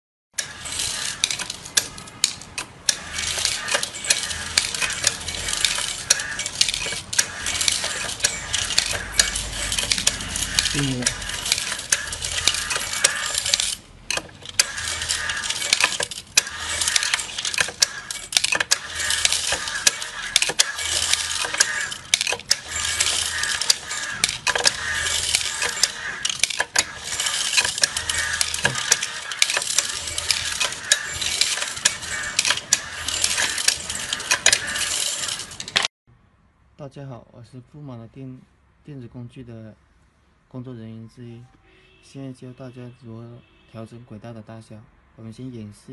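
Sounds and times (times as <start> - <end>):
metal screws rattling in machine: 0.4 - 35.9.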